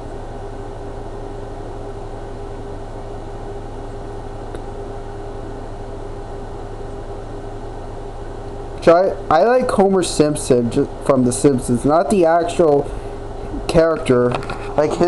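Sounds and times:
mechanical hum and hiss: 0.0s - 15.0s
constant mid-pitched tone: 8.8s - 15.0s.

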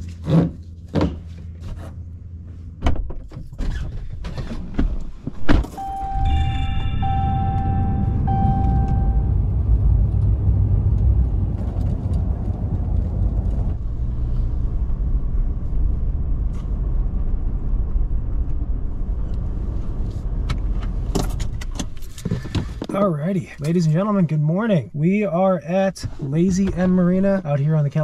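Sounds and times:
vehicle rumble: 0.0s - 28.0s
held high tone: 5.7s - 9.4s.

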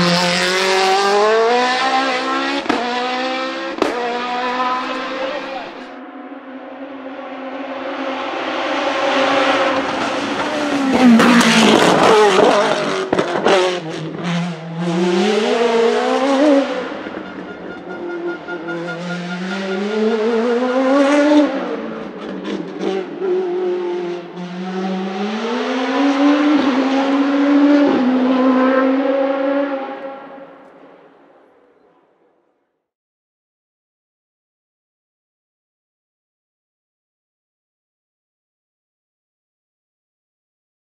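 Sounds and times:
racing car engine at full throttle: 0.0s - 31.9s.

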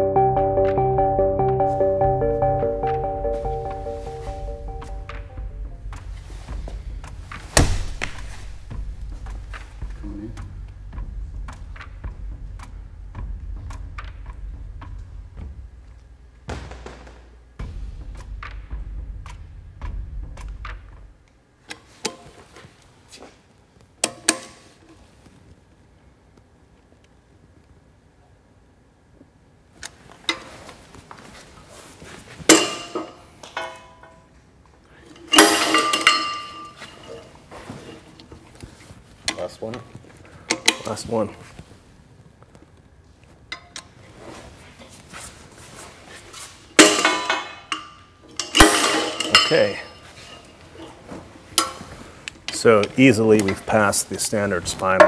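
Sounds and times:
low rumble: 17.5s - 21.2s.

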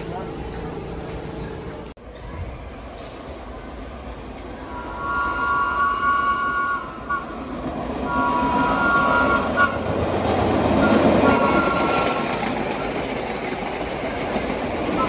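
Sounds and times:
train wheels rumbling on rails: 0.0s - 15.0s
train horn blasts: 4.6s - 7.4s, 8.0s - 10.0s, 10.8s - 12.4s.

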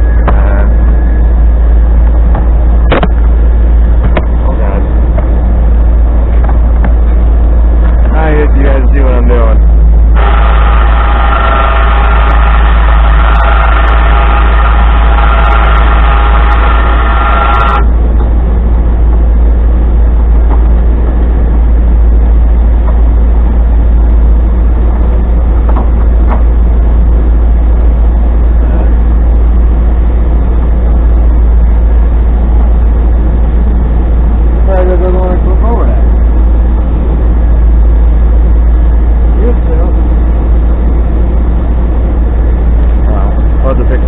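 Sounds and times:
truck engine idling: 0.0s - 44.0s
electric winch whining: 8.1s - 20.2s.

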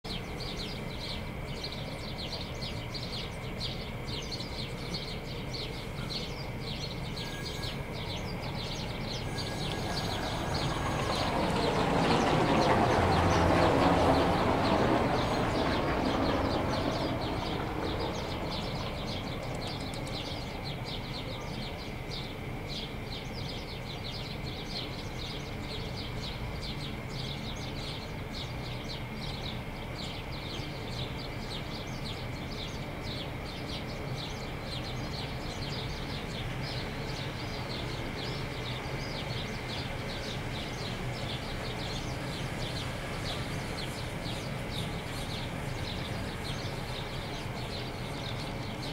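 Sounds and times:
distant traffic rumble: 0.1s - 48.9s
small birds chirping: 0.1s - 48.9s
vehicle passing: 9.3s - 20.0s.

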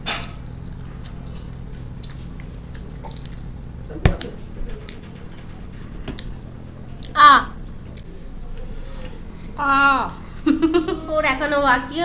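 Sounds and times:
people chewing noodles: 0.0s - 5.1s
steady low hum: 0.0s - 12.0s.

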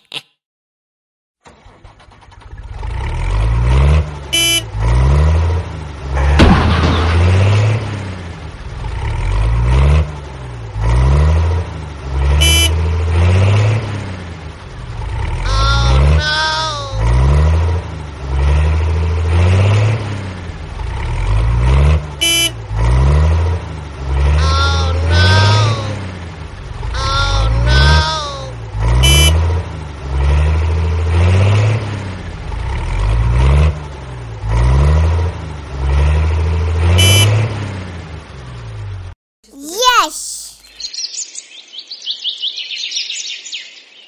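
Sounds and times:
pulsing tractor engine rumble: 1.4s - 19.3s, 20.4s - 31.1s, 32.2s - 37.5s
short horn toots: 4.4s - 4.7s, 12.4s - 12.8s, 22.2s - 22.6s, 29.0s - 29.4s, 37.0s - 37.4s.

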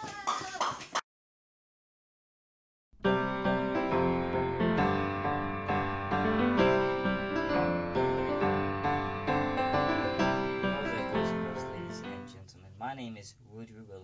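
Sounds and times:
piano music: 3.0s - 12.5s.

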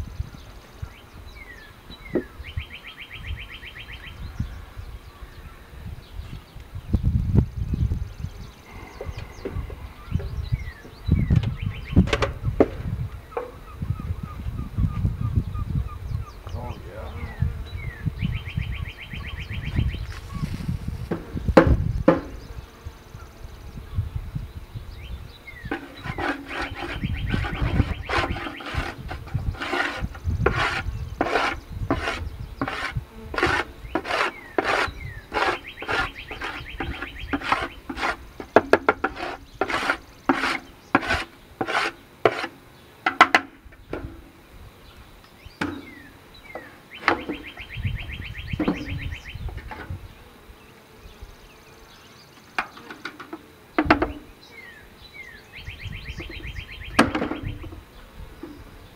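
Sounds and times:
bird trilling: 13.3s - 20.5s, 25.5s - 32.9s, 33.8s - 37.9s, 45.8s - 49.5s, 54.6s - 57.7s
scraping strokes on wood: 25.7s - 44.2s.

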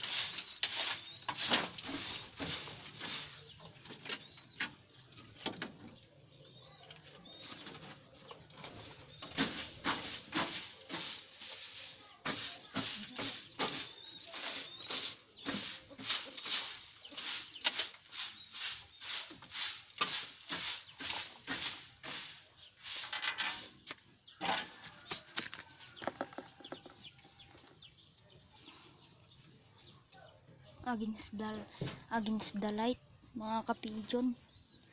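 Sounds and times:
broom sweeping wooden floor: 0.0s - 3.7s, 8.7s - 25.4s.

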